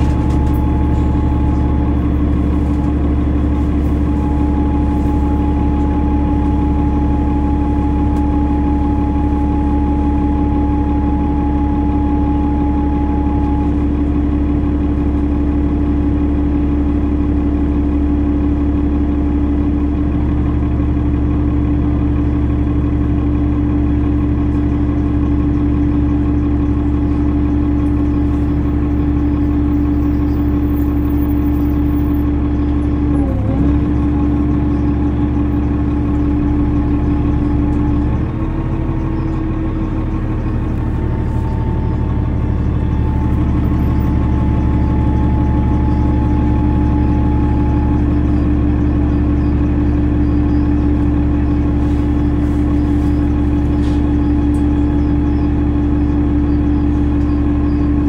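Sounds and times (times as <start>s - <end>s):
strong steady tone: 0.0s - 14.6s
deeper tone: 0.0s - 17.5s
bus diesel engine running: 0.0s - 58.0s.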